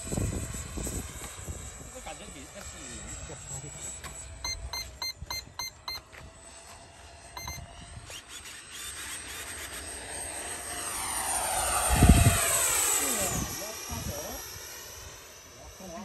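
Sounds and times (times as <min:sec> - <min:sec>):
model jet fans whining in flyby: 0:00.0 - 0:16.0
short electronic beeps: 0:04.4 - 0:06.0, 0:07.4 - 0:07.6.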